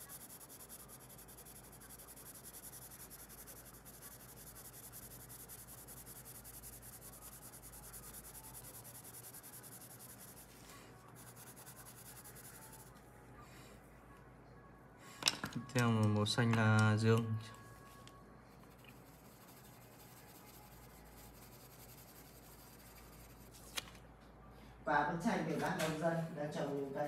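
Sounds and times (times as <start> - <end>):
pencil scratching on paper: 0.0 - 12.9, 18.7 - 23.6.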